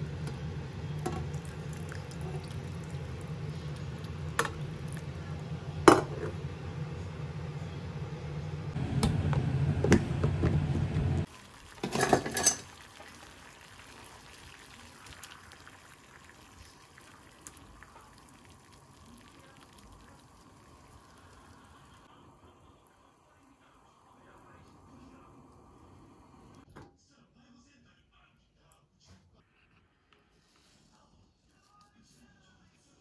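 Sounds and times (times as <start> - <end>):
water boiling in a pot: 0.0 - 7.4, 11.2 - 26.7
low hum: 0.0 - 11.3
kitchenware clattering: 5.9 - 6.4, 11.8 - 12.7.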